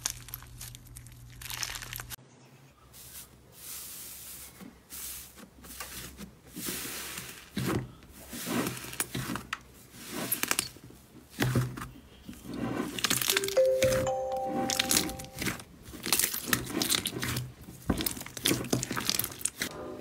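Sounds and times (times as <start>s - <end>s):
slime crackling: 0.0s - 2.2s, 15.4s - 19.7s
slime squishing: 0.0s - 2.2s, 5.3s - 13.4s, 15.4s - 19.7s.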